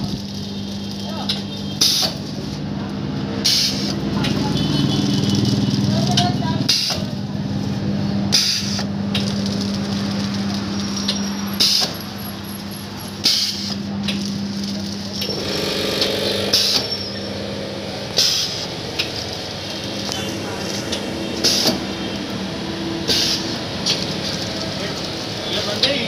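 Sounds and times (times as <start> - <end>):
pneumatic air hisses: 1.8 - 2.2, 3.4 - 3.9, 8.3 - 8.9, 11.6 - 12.0, 13.2 - 13.8, 15.9 - 17.0, 18.2 - 18.7, 21.4 - 21.8, 23.1 - 23.6
machine motor hum: 12.6 - 26.0.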